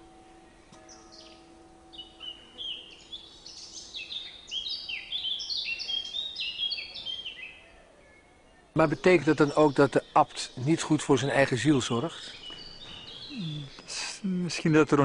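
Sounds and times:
faint steady hum: 0.0s - 6.4s
songbirds chirping and singing: 0.0s - 15.0s.

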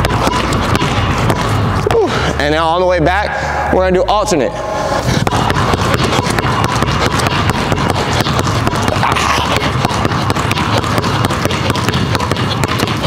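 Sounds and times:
basketballs bouncing on wooden floor: 0.0s - 2.3s, 5.1s - 13.0s.

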